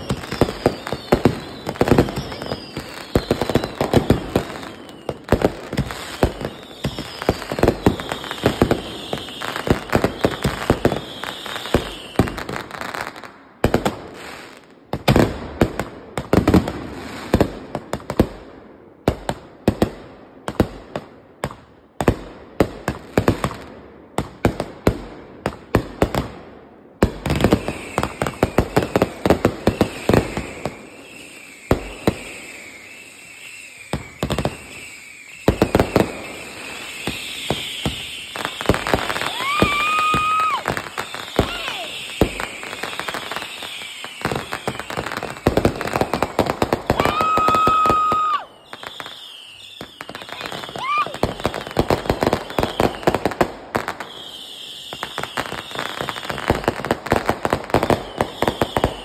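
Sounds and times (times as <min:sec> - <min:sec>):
falling firework whistles: 0:00.0 - 0:13.3, 0:27.2 - 0:59.0
fireworks bangs and crackling: 0:00.0 - 0:59.0.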